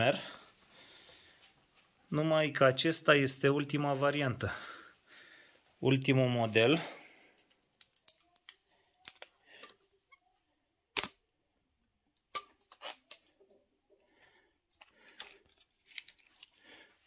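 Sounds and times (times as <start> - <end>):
plastic tag rustling: 14.7 - 16.7.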